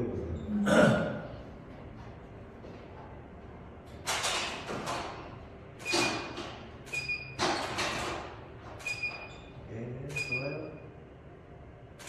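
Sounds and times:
short high beeps: 0:10.1 - 0:10.8.

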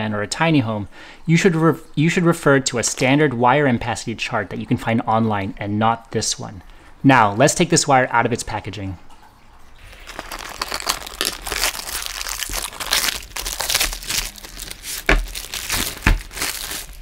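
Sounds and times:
plastic wrapping crinkling: 0:09.8 - 0:17.0
dull thumps: 0:12.5 - 0:16.9.

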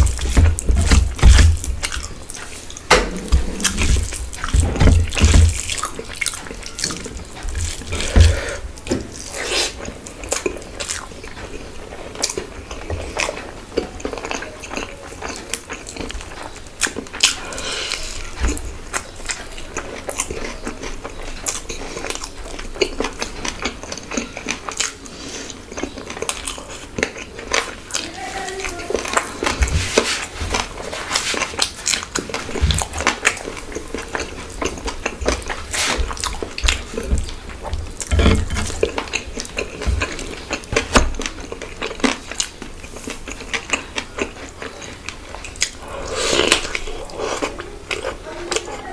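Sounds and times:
wet chewing and mouth smacks: 0:00.0 - 0:28.1, 0:28.7 - 0:48.7
loud thumps: 0:02.9 - 0:05.7.

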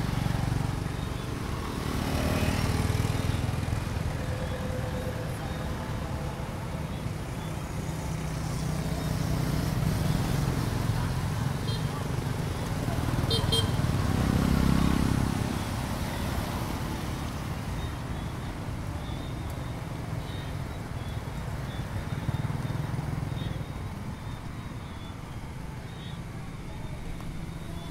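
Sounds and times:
motorbike passing: 0:00.0 - 0:27.9
scooters and motorbikes humming: 0:00.0 - 0:27.9.

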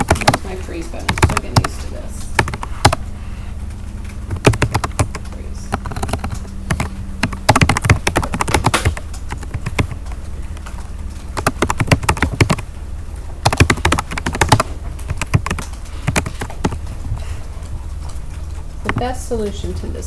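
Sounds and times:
keyboard key clicks: 0:04.3 - 0:10.0, 0:13.4 - 0:16.8.

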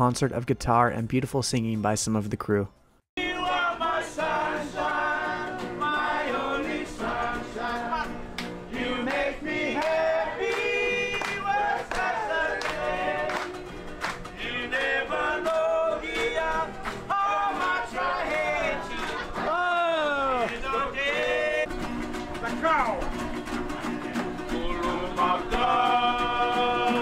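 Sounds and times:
men singing together: 0:03.2 - 0:13.6, 0:14.4 - 0:21.7, 0:23.6 - 0:27.0
strummed guitars and ukuleles: 0:03.2 - 0:27.0.

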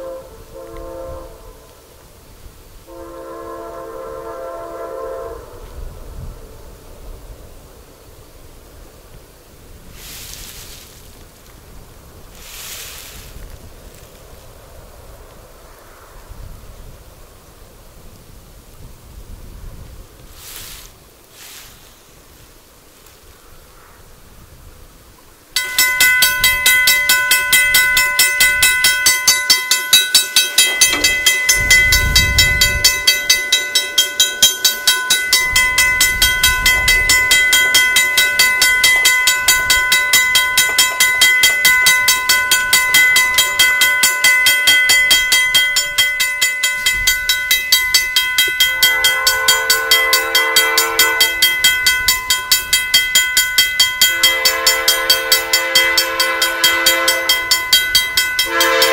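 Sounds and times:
locomotive air horn chord: 0:00.0 - 0:01.9, 0:02.8 - 0:06.3, 0:48.2 - 0:52.2, 0:53.9 - 0:58.9
railway crossing bell ringing: 0:25.5 - 0:58.9.

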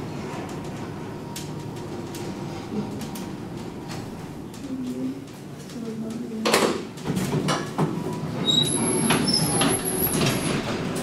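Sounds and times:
elevator doors clanking and rattling: 0:00.0 - 0:11.0
elevator doors clunk: 0:06.4 - 0:11.0.

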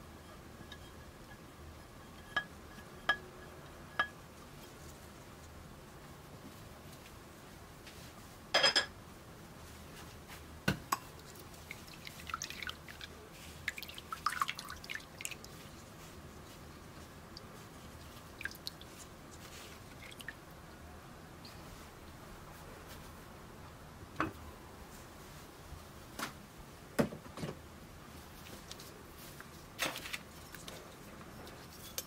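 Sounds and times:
glass clink: 0:08.6 - 0:08.9
spatula squishing paper: 0:11.2 - 0:17.0.

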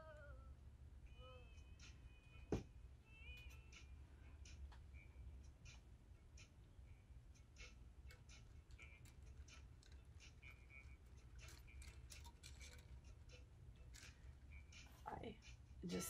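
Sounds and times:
low steady hum: 0:00.0 - 0:16.0
metal rings and pliers clicking: 0:07.6 - 0:15.0.

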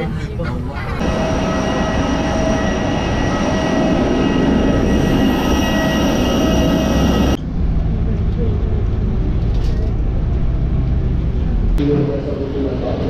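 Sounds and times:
high steady jet whine: 0:00.0 - 0:08.0
jet airliner rushing rumble: 0:00.0 - 0:13.0.

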